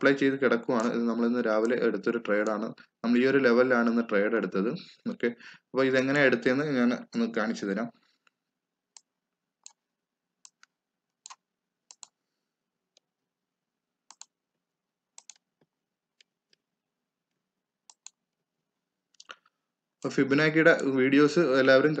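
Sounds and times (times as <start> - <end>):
computer mouse clicking: 0.8 - 1.0, 10.4 - 12.2, 14.1 - 14.4, 15.2 - 16.6, 17.9 - 18.2.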